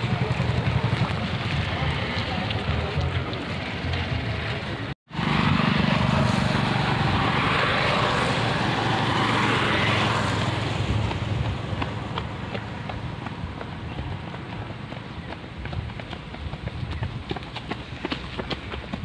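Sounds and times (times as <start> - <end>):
motorcycle engine passing by: 0.0 - 15.0.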